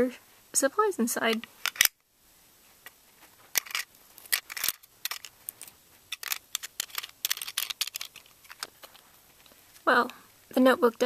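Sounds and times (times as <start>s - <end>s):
small plastic items clattering in tin: 3.6s - 9.0s.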